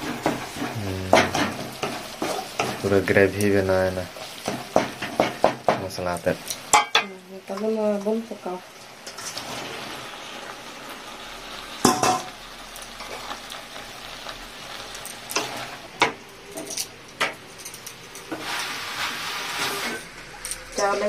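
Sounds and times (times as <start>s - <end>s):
vegetables sizzling in a pan: 0.0s - 21.0s
wooden spatula knocking on pan: 4.5s - 5.9s.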